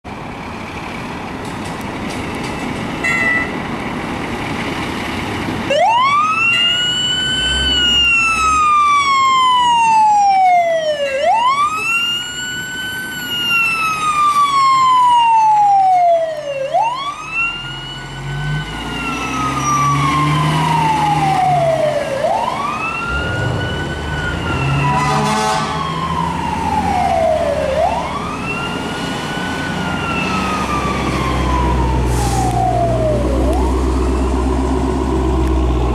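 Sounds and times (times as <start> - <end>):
truck engine rumble: 0.1 - 35.9
fire engine siren wailing: 5.4 - 35.9.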